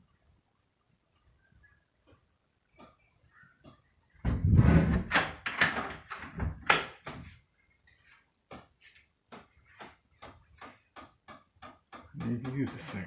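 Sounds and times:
knocks and rustles: 2.1 - 13.0
regular sharp ticking: 5.1 - 13.0.

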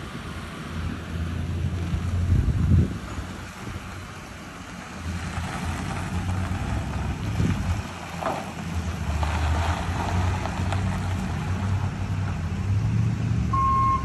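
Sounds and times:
wind rushing over microphone: 0.1 - 4.2, 5.1 - 8.1
ambulance engine running: 13.4 - 14.0.

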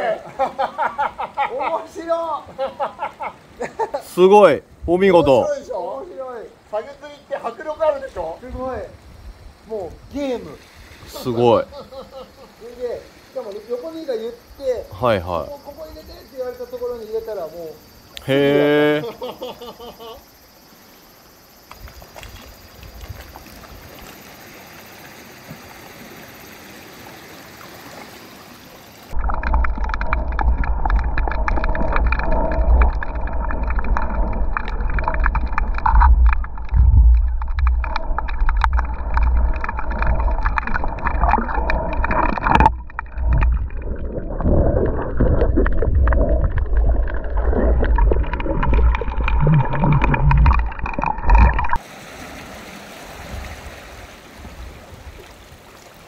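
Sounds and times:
water gurgling and sloshing: 7.7 - 18.2, 20.3 - 56.0
small clicks and pops: 29.2 - 43.8
heavy low rumble: 29.2 - 51.8.

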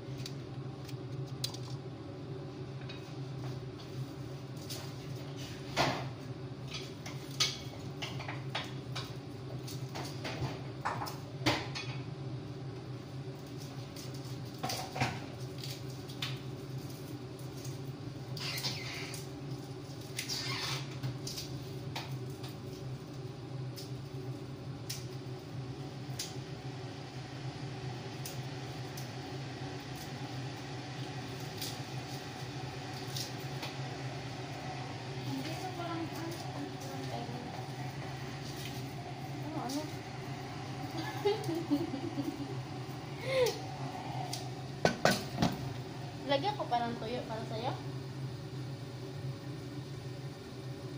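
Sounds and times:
steady low hum: 0.0 - 18.4, 20.9 - 50.9.

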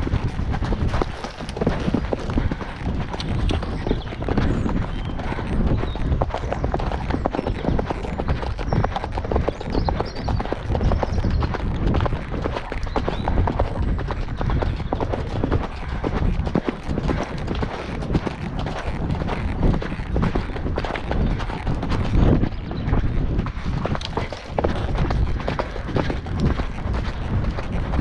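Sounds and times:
pony hoofbeats on gravel track: 0.0 - 28.0.

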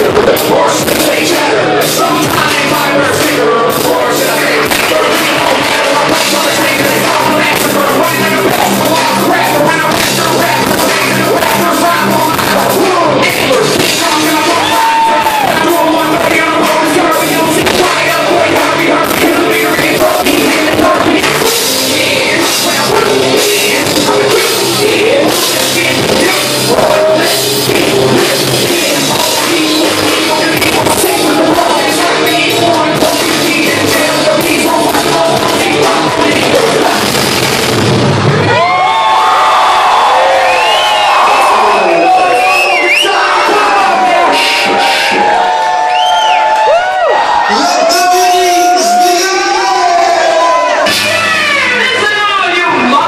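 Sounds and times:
people singing into microphones: 0.0 - 37.9, 39.5 - 47.7
electric guitar: 0.0 - 39.1
drum kit: 0.0 - 45.7, 48.3 - 53.0.

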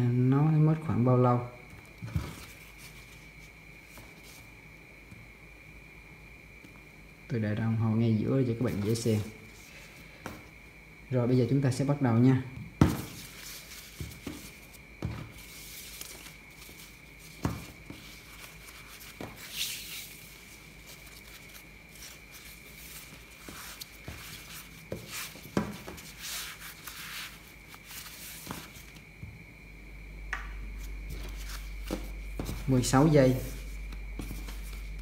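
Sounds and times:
necktie fabric rustling: 12.9 - 29.0, 30.8 - 35.0.

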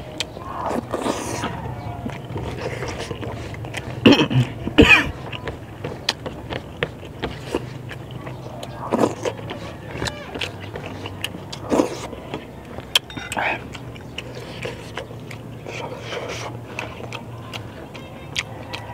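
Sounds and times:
chewing clicks and smacks: 0.0 - 18.9
man coughing: 4.0 - 5.3.

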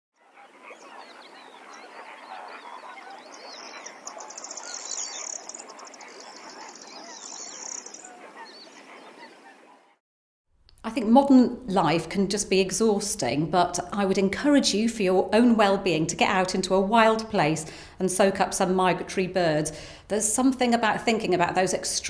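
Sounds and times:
flock of birds calling: 0.2 - 10.0.

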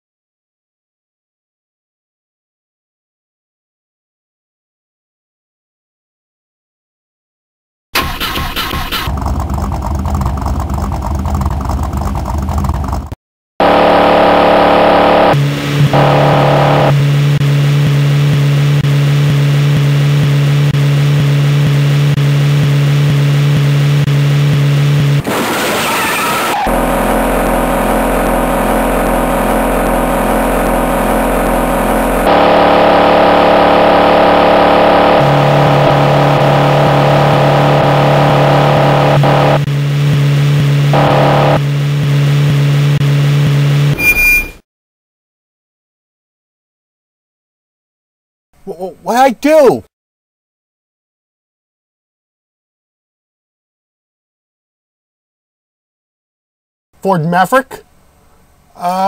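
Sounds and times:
lower engine sound: 8.0 - 25.5, 26.5 - 44.5
high-revving car engine: 8.0 - 44.0
noisy burst: 25.2 - 34.0.

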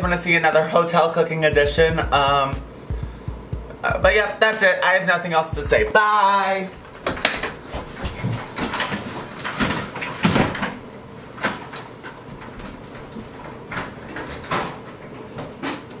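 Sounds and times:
knocks and clicks of furniture: 6.8 - 10.8
rustling of person moving: 6.8 - 15.4.

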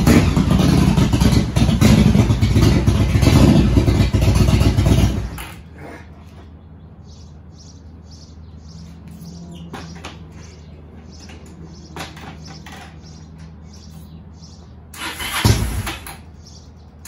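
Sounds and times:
motorcycle engine running: 0.0 - 5.7
small birds chirping: 5.6 - 15.4, 16.2 - 17.0.

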